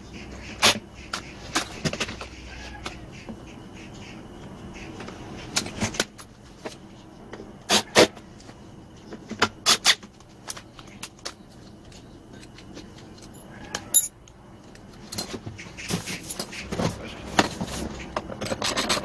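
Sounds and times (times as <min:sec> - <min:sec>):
tools and plastic parts knocking: 0:16.7 - 0:19.0.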